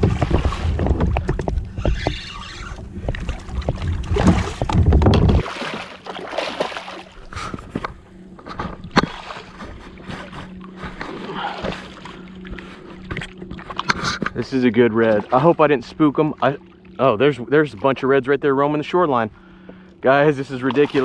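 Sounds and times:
wind buffeting microphone: 0:00.0 - 0:05.5
water sloshing and splashing: 0:00.0 - 0:18.3, 0:19.0 - 0:21.0.

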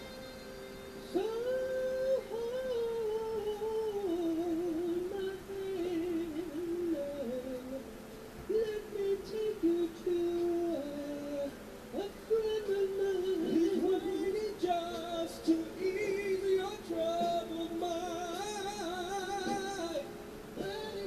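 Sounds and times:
woman singing slow melody: 0:01.1 - 0:07.8.

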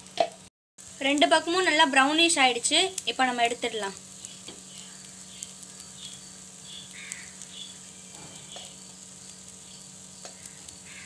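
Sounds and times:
oil sizzling and crackling: 0:00.0 - 0:11.0
short bird calls: 0:06.0 - 0:08.8, 0:10.3 - 0:11.0.

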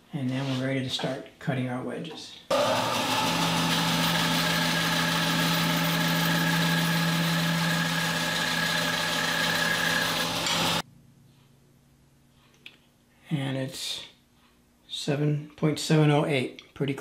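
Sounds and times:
band saw cutting wood: 0:02.5 - 0:10.8.

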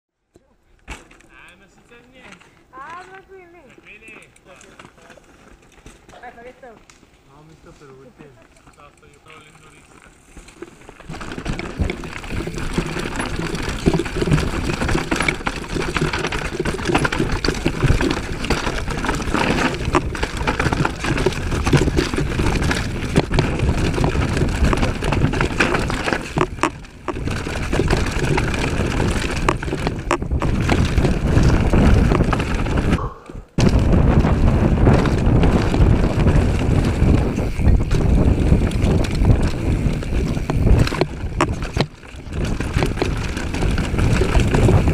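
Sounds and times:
bike knocks and rattles: 0:00.8 - 0:01.6, 0:08.7 - 0:44.9
bike tyres rumbling on dirt: 0:09.2 - 0:44.9.

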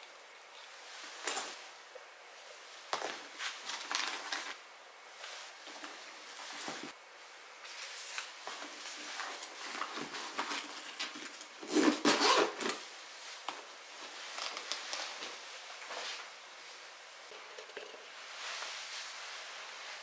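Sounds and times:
items rustling into a bag: 0:03.0 - 0:04.6, 0:07.6 - 0:13.4
bag zipper pulled shut: 0:11.7 - 0:12.8.

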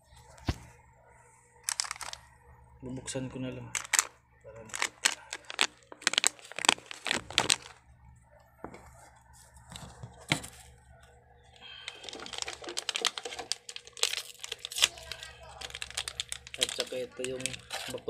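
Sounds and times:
plastic bag tearing and crinkling: 0:01.7 - 0:02.2, 0:03.8 - 0:04.1, 0:04.7 - 0:07.8, 0:11.6 - 0:18.0.

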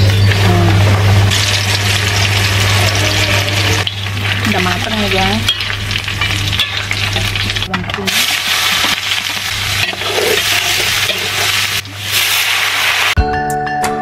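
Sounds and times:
chicken deep-frying in oil: 0:00.0 - 0:13.2
strainer stirring frying pieces: 0:01.0 - 0:13.2.

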